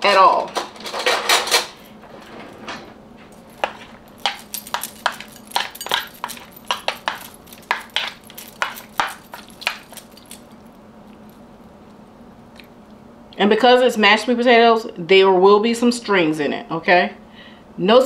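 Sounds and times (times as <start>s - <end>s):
faint steady hum: 0.0s - 18.0s
metal spoons clinking on plastic bowl: 3.6s - 10.5s.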